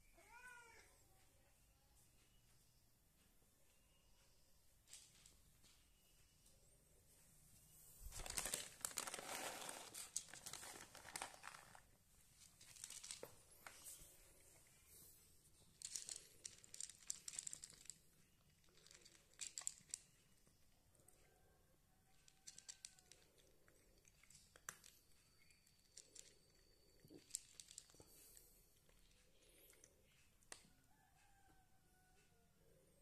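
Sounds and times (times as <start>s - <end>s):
cat crunching dry kibble: 8.1s - 14.8s, 15.6s - 20.2s, 22.3s - 25.0s, 27.0s - 29.9s.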